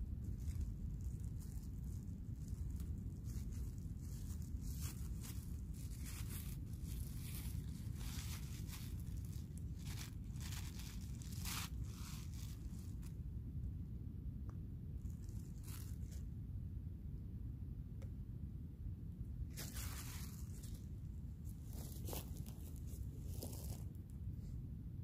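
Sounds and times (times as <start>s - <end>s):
plastic bag crinkling: 0.3s - 13.1s.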